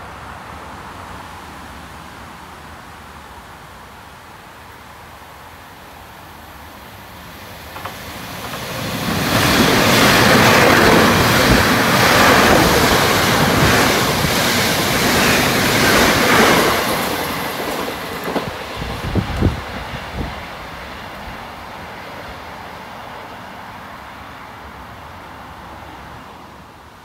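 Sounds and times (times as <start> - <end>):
train wheels rushing on rail: 6.9 - 24.4.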